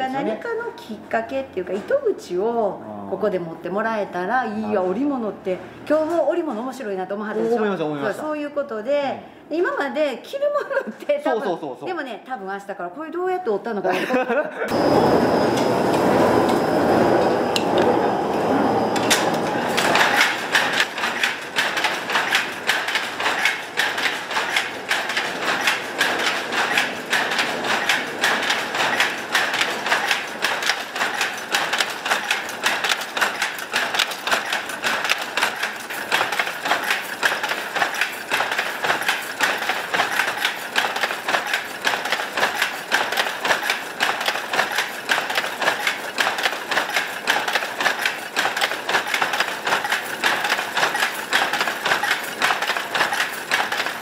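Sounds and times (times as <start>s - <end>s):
power loom clacking: 14.7s - 54.0s
whir of loom drive: 14.7s - 54.0s.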